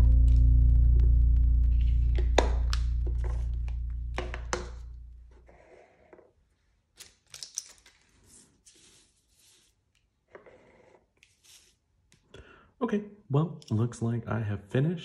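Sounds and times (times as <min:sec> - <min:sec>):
art supplies clicking on desk: 0:07.0 - 0:08.1
paper sliding across table: 0:08.2 - 0:09.8, 0:10.4 - 0:11.8.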